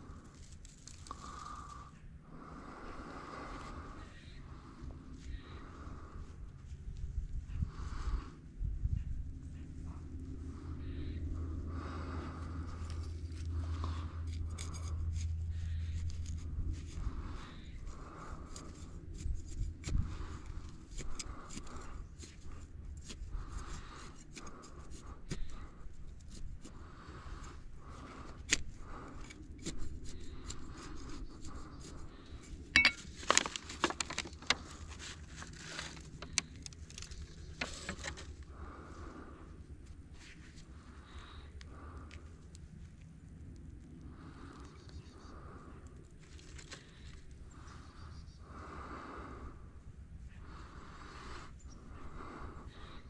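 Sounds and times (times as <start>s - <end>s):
handling clicks and rustles: 32.7s - 38.5s.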